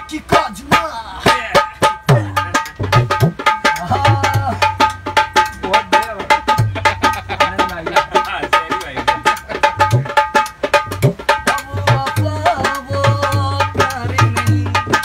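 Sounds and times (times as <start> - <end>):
hand drum strokes: 0.3 - 15.0
man singing folk song: 11.5 - 15.0.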